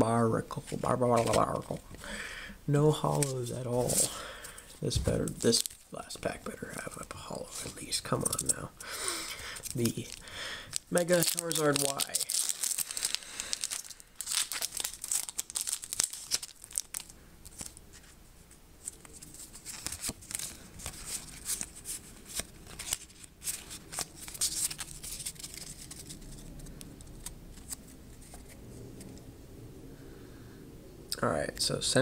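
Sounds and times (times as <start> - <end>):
foil wrapper crinkling: 5.2 - 6.0, 6.6 - 18.0, 18.8 - 28.4
trading cards sliding and snapping: 18.9 - 29.2.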